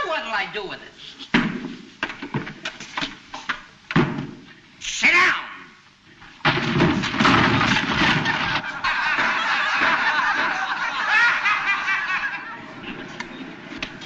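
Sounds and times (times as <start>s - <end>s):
knocks and clatters: 6.4s - 10.6s
crowd laughing: 8.0s - 13.2s.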